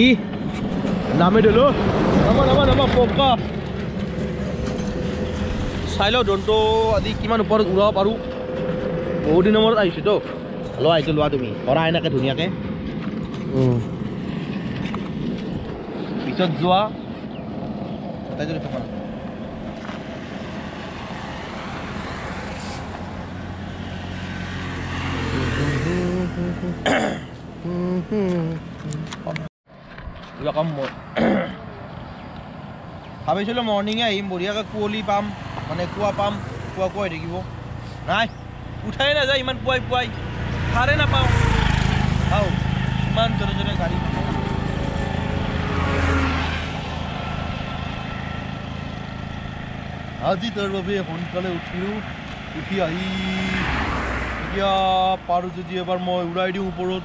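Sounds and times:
vehicle passing by: 0.0 - 30.9, 31.8 - 57.0
road noise: 0.0 - 57.0
person speaking: 13.5 - 13.9, 25.4 - 27.0, 27.6 - 29.5.

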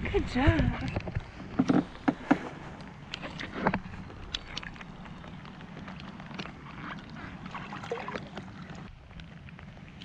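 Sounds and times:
water splashing and dripping: 3.0 - 10.0
light rain pattering: 8.7 - 10.0.

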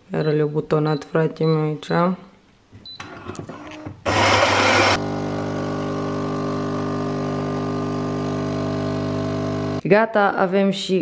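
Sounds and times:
coffee machine humming: 4.0 - 9.8
coffee machine rush of noise: 4.1 - 9.8.

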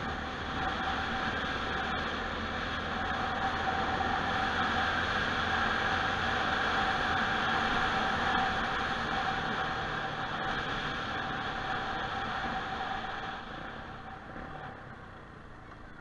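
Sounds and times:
faint motorcycle engine tone: 13.9 - 16.0.

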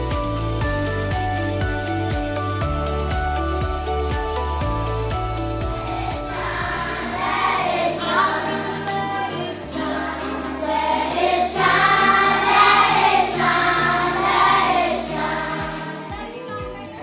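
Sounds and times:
instrumental music: 0.0 - 17.0
choir singing: 5.8 - 16.1.

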